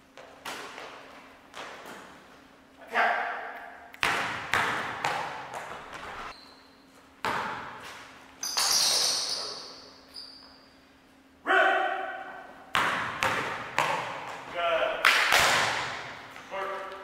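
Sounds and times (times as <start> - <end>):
basketball bouncing on hardwood: 4.0 - 6.0, 7.2 - 7.8, 12.8 - 14.5.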